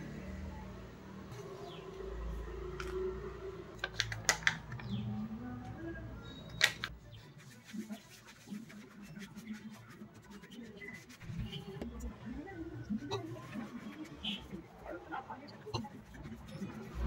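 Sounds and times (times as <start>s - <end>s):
fingers mixing dry spices: 7.3s - 17.0s.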